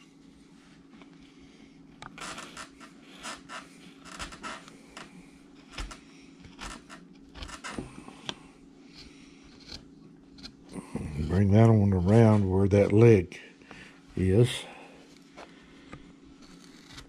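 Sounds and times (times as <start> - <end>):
carving tool scraping wood: 5.6 - 7.8, 8.8 - 12.4, 16.3 - 17.0.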